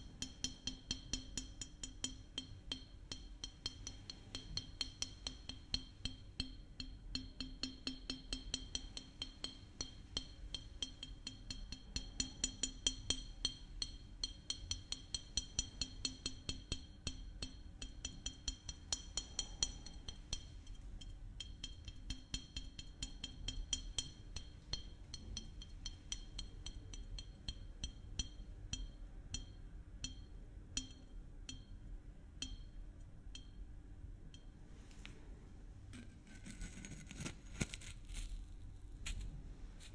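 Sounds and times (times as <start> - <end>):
glass bottle tapped ringing: 23.2 - 33.7.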